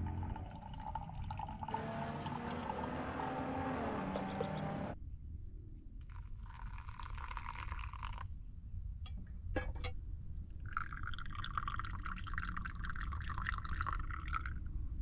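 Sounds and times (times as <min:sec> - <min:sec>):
coffee trickling into metal mug: 0:06.5 - 0:08.3, 0:10.8 - 0:14.5
hot water pouring: 0:06.5 - 0:08.3, 0:10.8 - 0:14.5.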